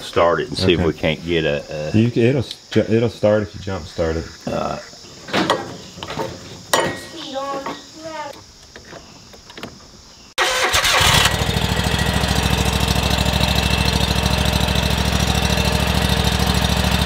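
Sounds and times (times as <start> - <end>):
mower engine cranking and running: 10.4 - 17.0.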